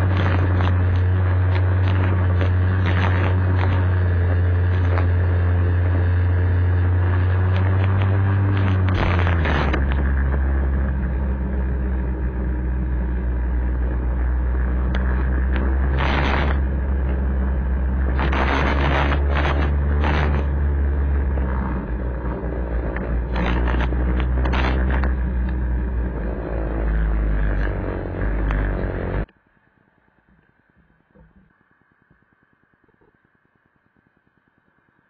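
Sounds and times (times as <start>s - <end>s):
scooter engine running: 0.0s - 29.3s
wind rushing over microphone: 0.0s - 29.3s
short burst of noise: 12.3s - 29.3s.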